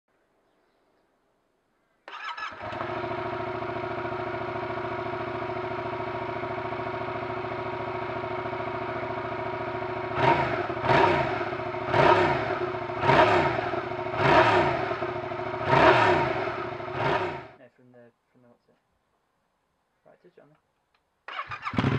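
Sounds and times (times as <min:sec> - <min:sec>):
engine throttle blips: 0:02.1 - 0:17.6
motorcycle engine idling: 0:02.1 - 0:17.6, 0:21.3 - 0:21.9.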